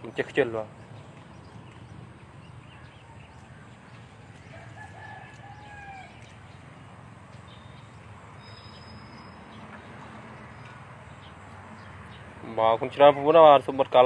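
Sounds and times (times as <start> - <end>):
rooster crowing: 4.5 - 6.2.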